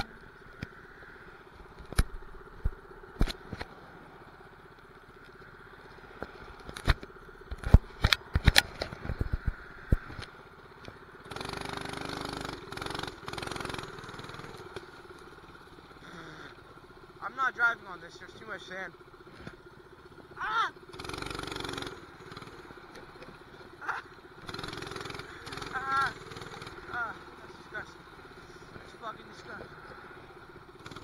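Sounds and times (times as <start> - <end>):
small engine revving: 0.0 - 4.2, 6.2 - 16.8, 18.8 - 31.0
sharp knocks and clicks: 6.2 - 11.0.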